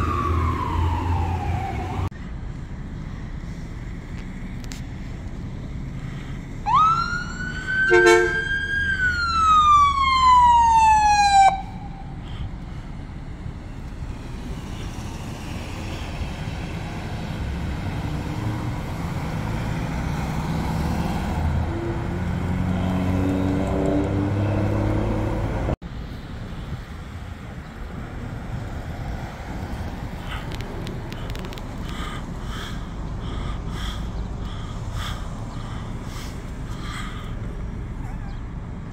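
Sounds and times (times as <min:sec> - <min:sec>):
ambulance siren wail: 0:00.0 - 0:02.1, 0:06.6 - 0:12.2
traffic and vehicle engines: 0:00.0 - 0:38.9
short horn blast: 0:07.9 - 0:08.5
heavy engine rumble: 0:11.7 - 0:17.9, 0:29.7 - 0:38.9.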